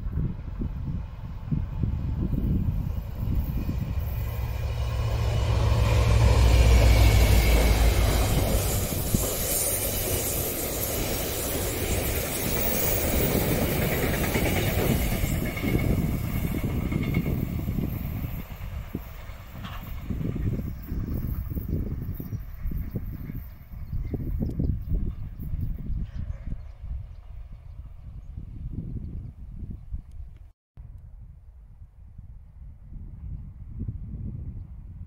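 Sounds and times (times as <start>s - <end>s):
diesel locomotive engine hum: 0.0s - 30.2s
train wagons rolling on track: 2.2s - 24.4s.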